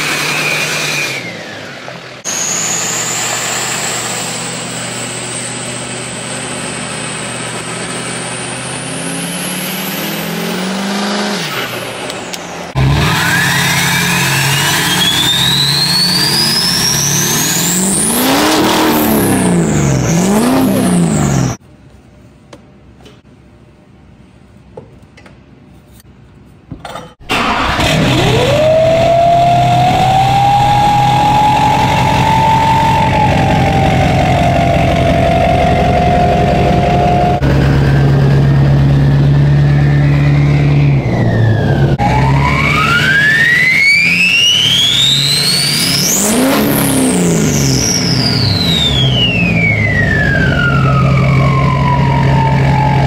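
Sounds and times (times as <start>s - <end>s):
diesel engine starting and idling: 0.0s - 21.6s, 27.2s - 53.0s
engine revving: 0.0s - 21.6s, 27.3s - 53.0s
turbo whistle: 13.0s - 20.8s, 28.2s - 37.4s, 39.7s - 53.0s.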